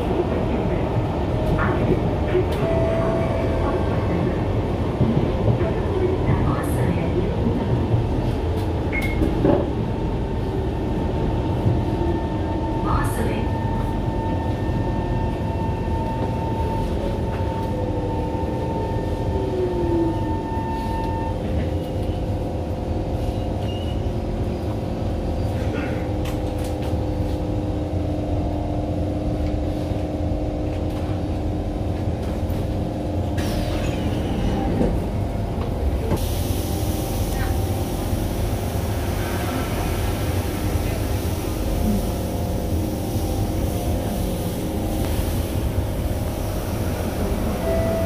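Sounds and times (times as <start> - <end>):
train motor rumbling and whining: 0.0 - 48.0
train doors hissing open: 33.3 - 34.6, 36.0 - 45.8.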